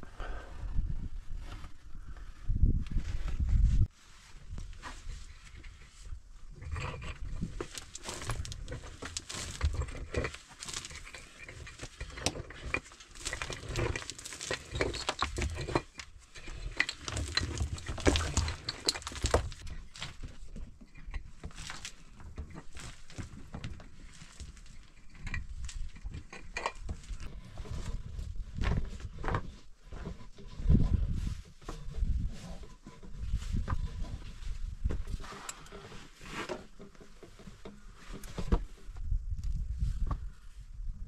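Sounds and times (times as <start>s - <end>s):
small stones clattering: 7.0s - 20.3s, 20.9s - 27.3s.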